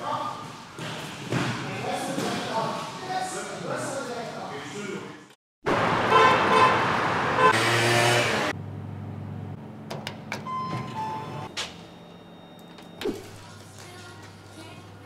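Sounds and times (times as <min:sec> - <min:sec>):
vehicle passing close: 0:05.7 - 0:08.6
horn-like toot: 0:06.1 - 0:08.5.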